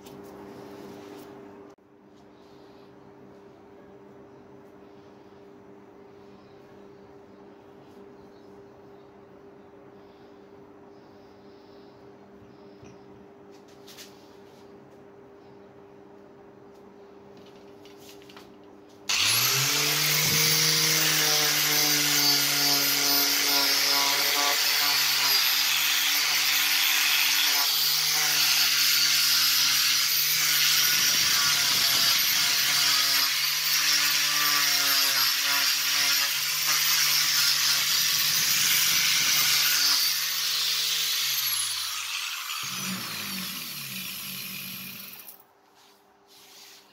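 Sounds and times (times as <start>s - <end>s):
electric sander running: 19.1s - 45.3s
sanding pad rubbing wood: 45.8s - 46.9s.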